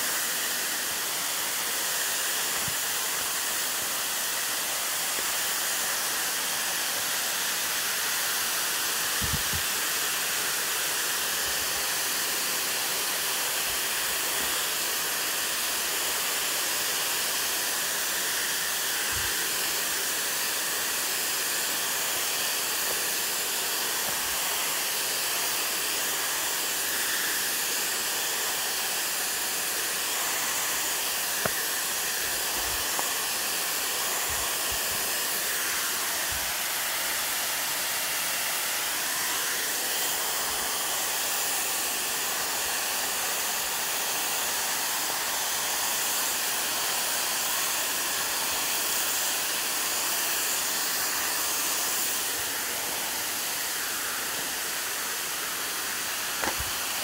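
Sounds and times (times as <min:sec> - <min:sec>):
waterfall rushing: 0:45.6 - 0:57.0.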